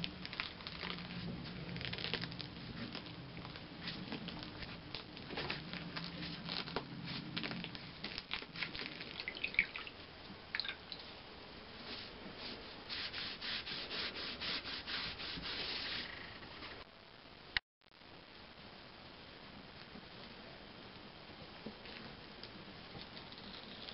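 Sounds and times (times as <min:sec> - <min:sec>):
gloved hand rubbing damp paper: 0:11.8 - 0:16.3.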